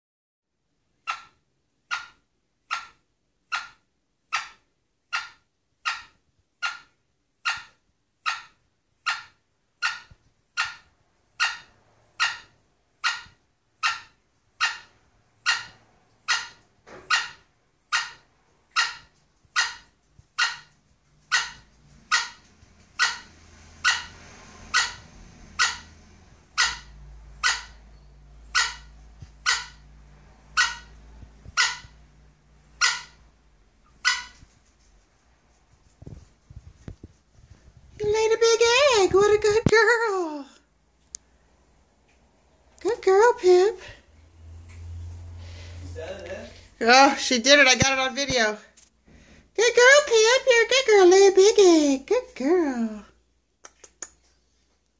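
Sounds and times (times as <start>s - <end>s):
hen calling: 1.0s - 29.8s, 30.5s - 32.0s, 32.6s - 34.8s.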